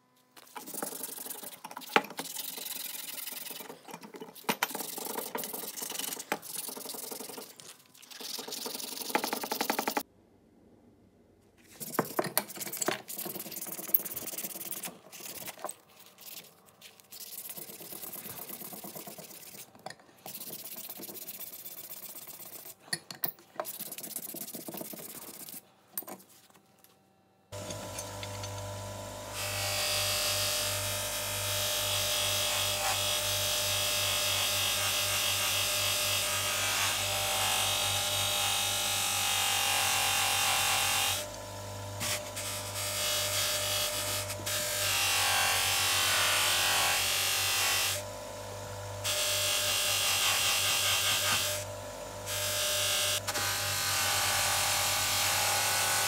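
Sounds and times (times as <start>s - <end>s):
sandpaper scratching steel: 0.5s - 7.6s, 11.8s - 19.7s, 20.3s - 22.9s, 23.6s - 25.6s
steel polishing on grinder wheel: 0.5s - 10.0s, 11.8s - 22.9s, 23.6s - 25.6s.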